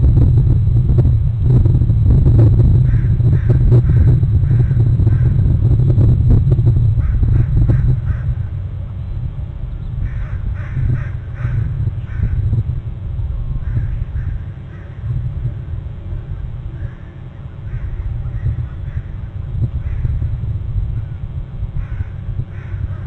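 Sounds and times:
steady low rumble: 0:00.0 - 0:23.0
crow cawing: 0:07.0 - 0:08.4, 0:10.0 - 0:12.4, 0:13.6 - 0:15.1, 0:16.8 - 0:19.2, 0:21.8 - 0:23.0.

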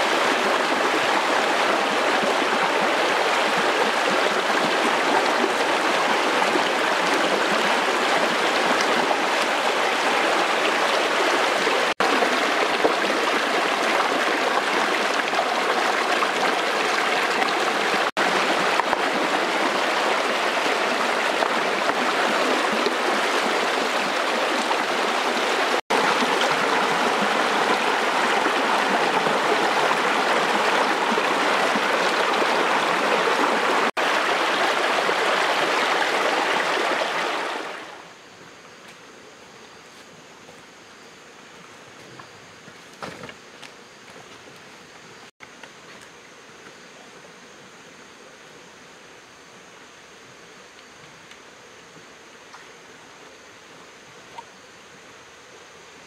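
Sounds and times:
stream rushing over rocks: 0:00.0 - 0:38.2.

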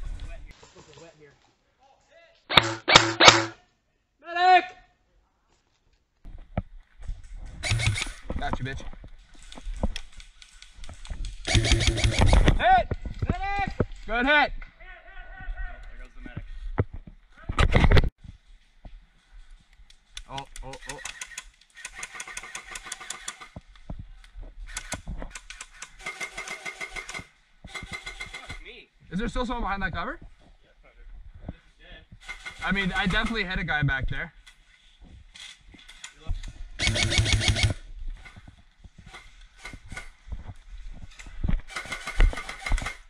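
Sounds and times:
airsoft guns firing: 0:02.5 - 0:03.6, 0:07.6 - 0:08.2, 0:11.5 - 0:12.6, 0:36.8 - 0:37.8
footsteps and gear knocking: 0:10.8 - 0:14.0.

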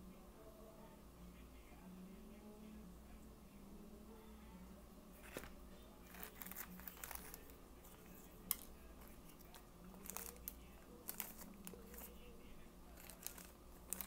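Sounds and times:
plastic bag crinkling: 0:05.2 - 0:07.6, 0:08.5 - 0:12.2, 0:13.0 - 0:14.0.

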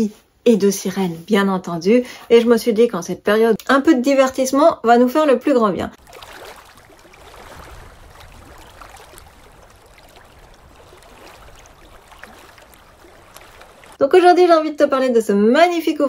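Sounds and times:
moving water: 0:06.0 - 0:14.0.

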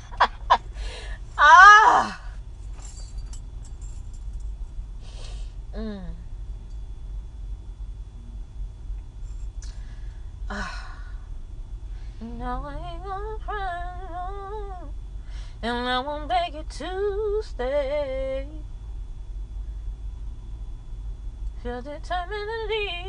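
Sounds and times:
steady low hum: 0:00.0 - 0:23.0
woman singing unaccompanied: 0:01.4 - 0:02.2, 0:12.2 - 0:14.9, 0:15.6 - 0:18.6, 0:21.6 - 0:23.0.

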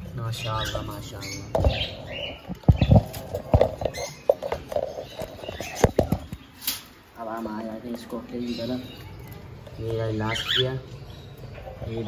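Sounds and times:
bird chirps: 0:00.3 - 0:06.8.

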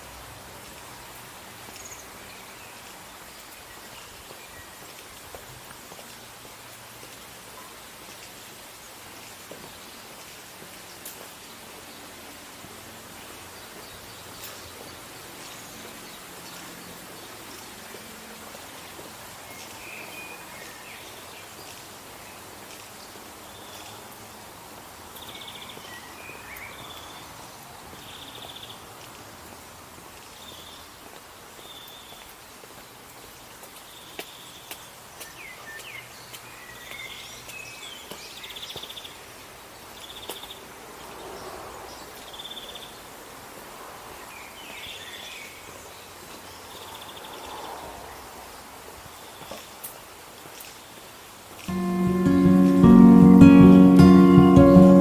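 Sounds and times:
fountain water splashing: 0:00.0 - 0:37.6.

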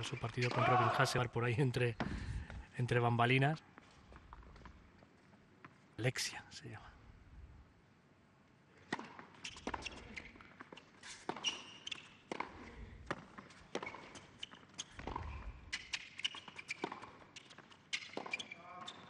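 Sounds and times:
shoes squeaking on hard court: 0:00.0 - 0:00.8, 0:08.9 - 0:19.0
tennis ball bouncing: 0:11.2 - 0:18.4
racket hitting tennis ball: 0:12.3 - 0:14.0.

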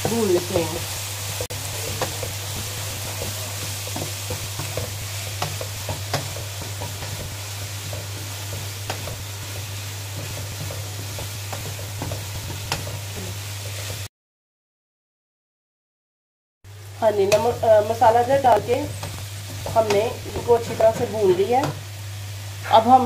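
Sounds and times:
food sizzling in hot oil: 0:00.0 - 0:14.1, 0:16.7 - 0:23.0
wooden spatula scraping a pan: 0:01.3 - 0:14.1.

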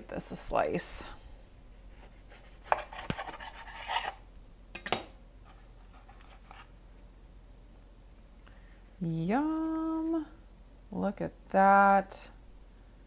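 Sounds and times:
knife crunching through toasted bread: 0:02.0 - 0:04.2.

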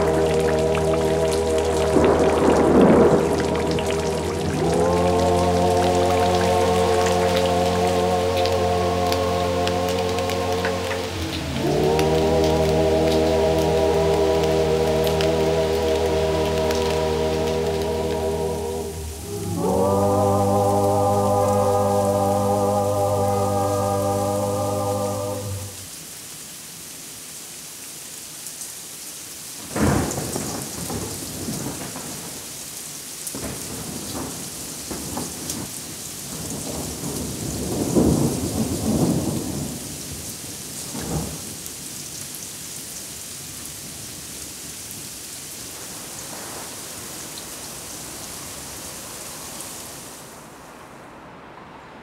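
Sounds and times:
thunderclap: 0:00.0 - 0:05.0, 0:29.7 - 0:32.4, 0:33.4 - 0:39.9
rolling thunder rumbles: 0:00.0 - 0:07.4, 0:33.4 - 0:40.0
heavy rain: 0:00.0 - 0:52.0.

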